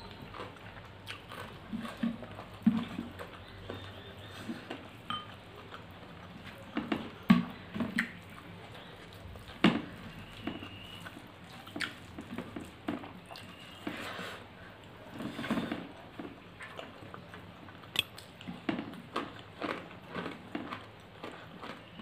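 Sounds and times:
chewing and mouth smacks: 0.0 - 14.0, 14.8 - 22.0
fingers squishing wet food: 0.0 - 14.1.

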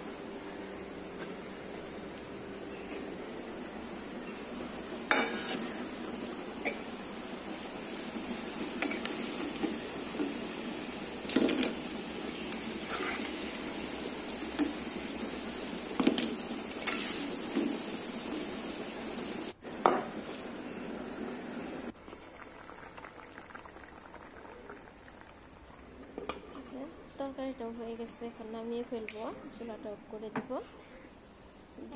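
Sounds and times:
fritters sizzling in oil: 4.7 - 19.6.

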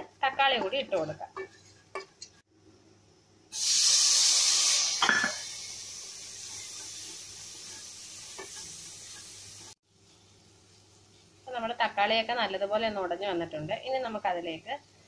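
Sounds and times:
tomatoes sizzling in hot oil: 3.5 - 15.0.

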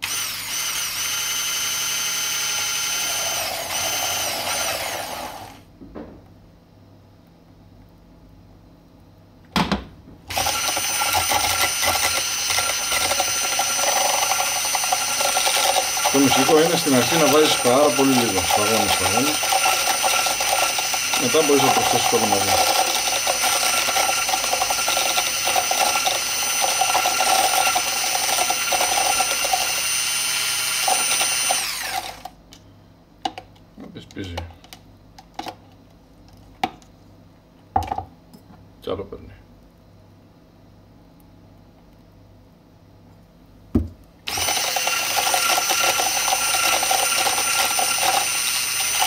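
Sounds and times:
stick blender motor whine: 0.0 - 5.6, 10.3 - 32.3, 44.3 - 49.0
whisk chattering in mixture: 10.3 - 32.0, 44.4 - 49.0.

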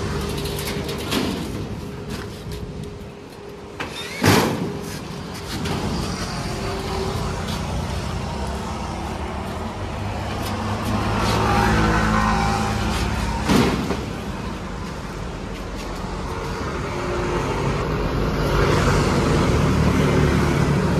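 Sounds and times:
vehicle engine rumbling: 4.5 - 20.9.

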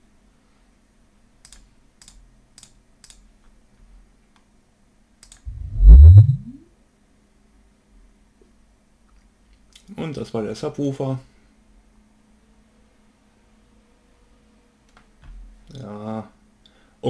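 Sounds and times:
low tone rising in pitch: 5.5 - 6.6.

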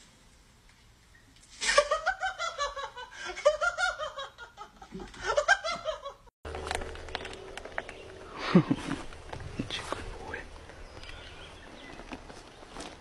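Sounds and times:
person laughing: 1.6 - 6.3, 8.3 - 9.1.

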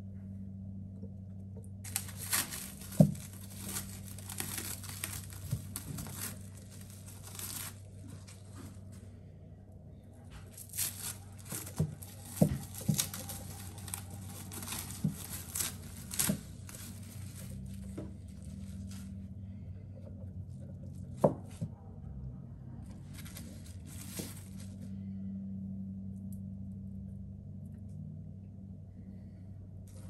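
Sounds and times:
plastic wrap crinkling: 1.9 - 9.0, 10.4 - 19.4, 22.8 - 24.9.

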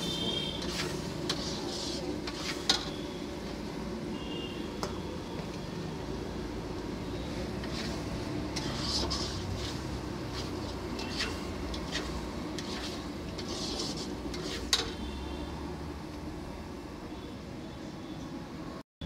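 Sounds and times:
metal ladle scraping a pan: 0.0 - 3.0, 7.6 - 15.2.

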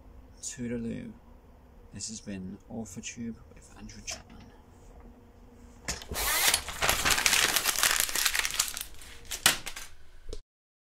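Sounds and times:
rustling and crackling handling noise: 5.7 - 10.0.

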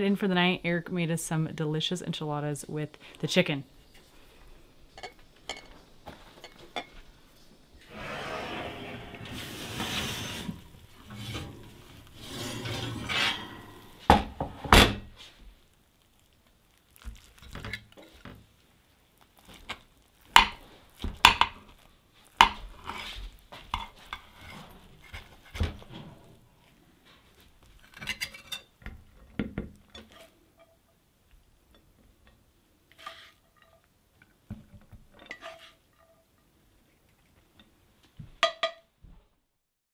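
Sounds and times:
utensils scraping and clinking dishes: 7.9 - 14.1.

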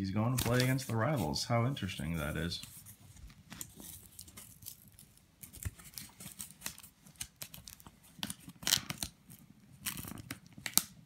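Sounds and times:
paper envelope rustling: 0.3 - 9.2
paper crackle: 0.4 - 11.0.

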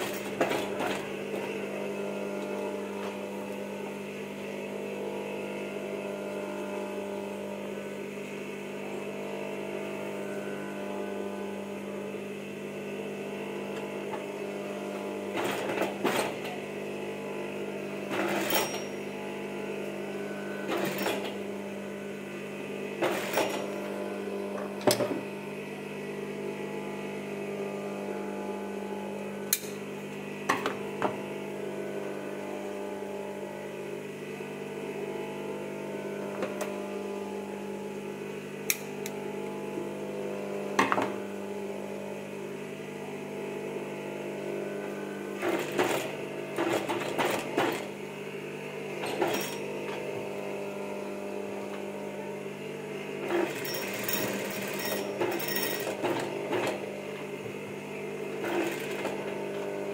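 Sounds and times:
sewing machine motor humming: 8.2 - 33.5, 44.6 - 59.9
sewing machine stitching bursts: 45.4 - 47.9, 53.2 - 56.8, 58.4 - 59.4.

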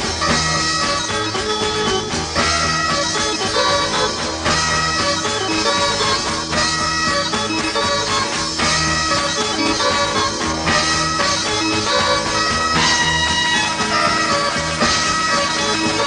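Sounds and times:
band with electric guitars: 0.0 - 16.0
held reedy high tones: 0.0 - 16.0.

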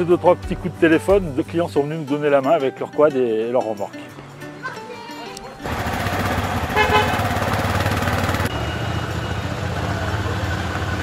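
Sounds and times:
motor vehicle running: 5.5 - 11.0
short horn toot: 6.7 - 7.2.

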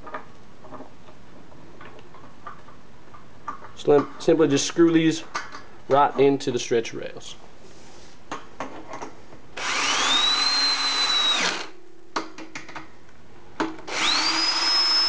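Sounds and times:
cordless drill motor whining: 9.6 - 11.7, 13.9 - 15.0.

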